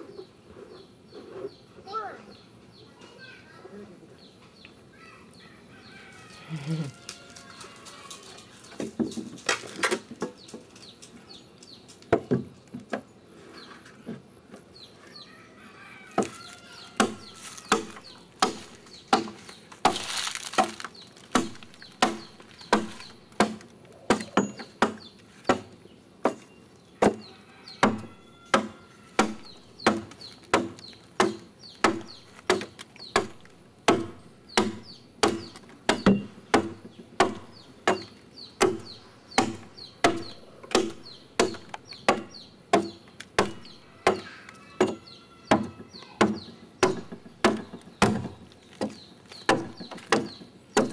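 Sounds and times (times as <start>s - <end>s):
adze chopping wood: 17.0s - 50.9s.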